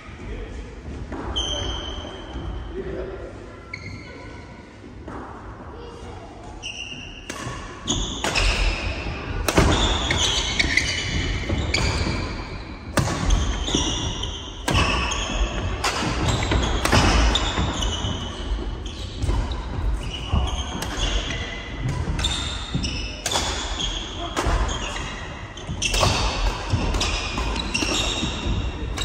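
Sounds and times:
shoes squeaking on floor: 1.3 - 2.6, 3.6 - 4.3, 6.5 - 29.0
racket striking shuttlecock: 9.4 - 10.9, 14.6 - 17.8.

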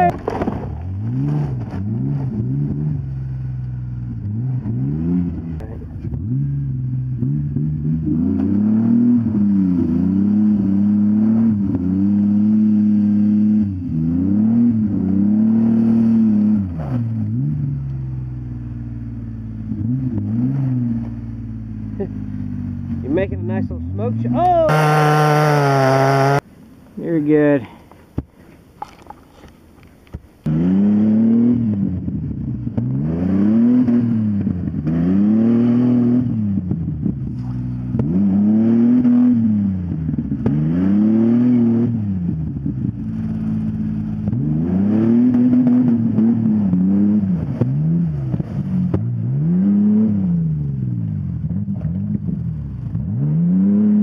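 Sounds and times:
engine revving hard: 0.8 - 17.9, 23.1 - 26.4, 30.4 - 42.4, 44.2 - 50.5, 53.0 - 54.0.

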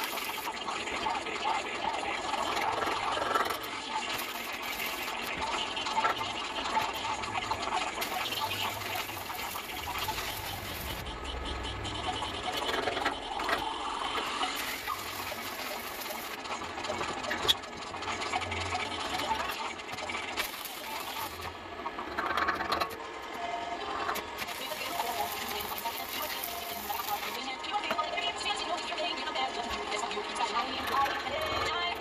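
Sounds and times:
welding arc crackling: 0.0 - 0.9, 2.4 - 21.6, 24.1 - 27.4.

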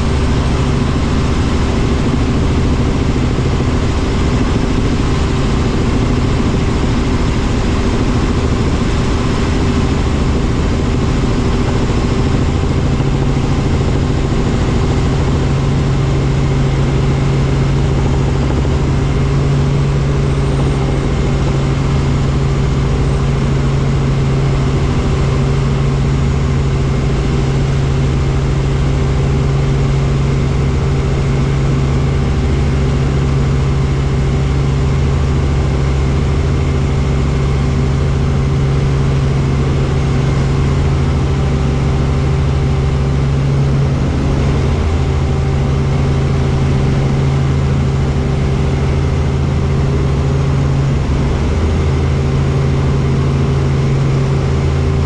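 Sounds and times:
helicopter engine and rotors drone: 0.0 - 55.0.

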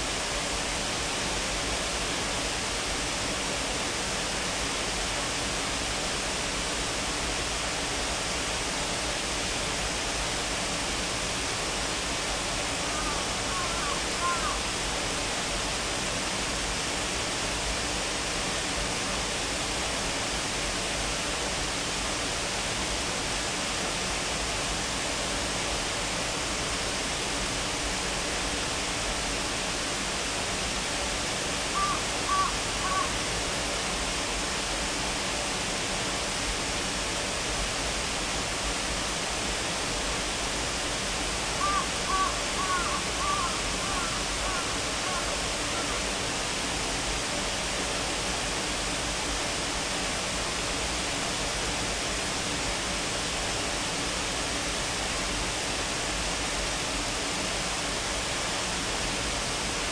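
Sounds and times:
waterfall rushing: 0.0 - 59.9
bird calls: 12.9 - 14.6, 31.8 - 33.2, 41.6 - 46.0.

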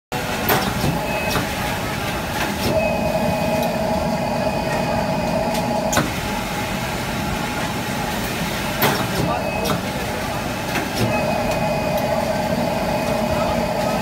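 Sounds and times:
machine running: 0.2 - 14.0
steady machine tone: 2.7 - 6.0, 11.1 - 14.0.

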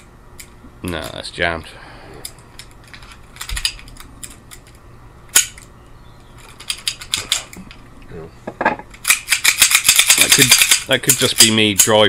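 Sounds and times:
air pistol clicking and clacking: 6.4 - 7.8, 8.9 - 12.0.

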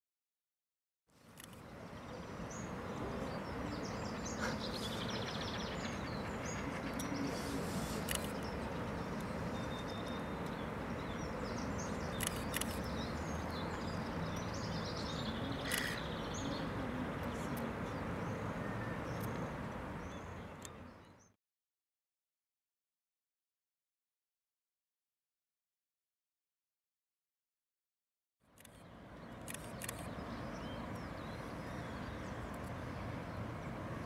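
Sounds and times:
outdoor background noise: 1.1 - 21.4, 28.4 - 34.0
birds chirping and calling: 1.4 - 21.2
sharp clicks: 12.1 - 12.9.

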